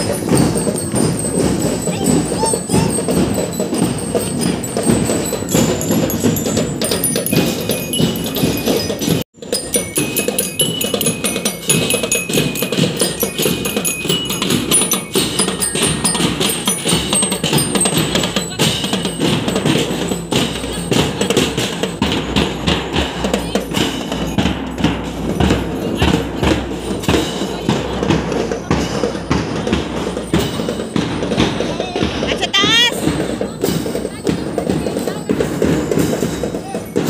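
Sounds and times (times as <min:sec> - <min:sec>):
high ringing tones: 0:00.0 - 0:29.0
drums beating rapid rhythm: 0:00.0 - 0:37.0.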